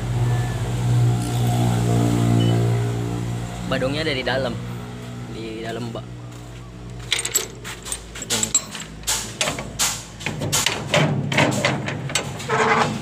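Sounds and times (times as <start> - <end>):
metal chain and latch clanking: 7.0 - 13.0.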